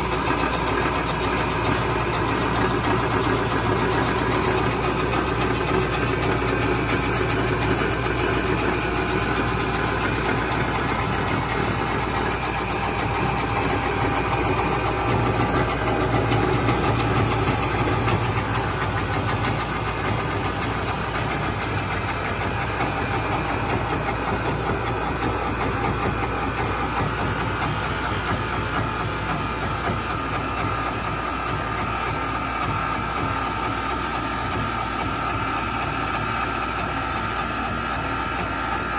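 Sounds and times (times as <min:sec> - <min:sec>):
lathe cutting wood: 0:00.0 - 0:31.1.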